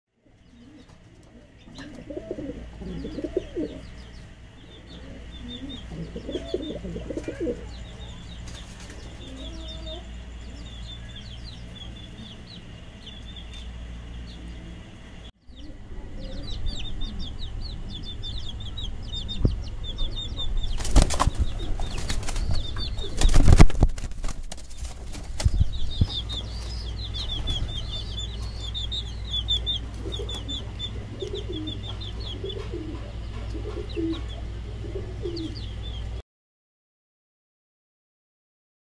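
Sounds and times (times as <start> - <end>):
pigeons cooing: 0.2 - 8.2, 8.8 - 13.0, 15.5 - 18.5, 24.2 - 36.2
steady low hum: 0.2 - 36.2
wings flapping: 8.4 - 9.3, 20.7 - 27.9.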